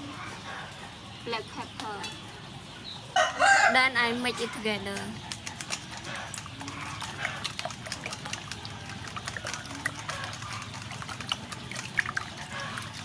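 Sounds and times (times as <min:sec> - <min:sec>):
eggs sloshing in metal bowl: 0:04.2 - 0:13.0
whisk clicking against bowl: 0:04.9 - 0:13.0.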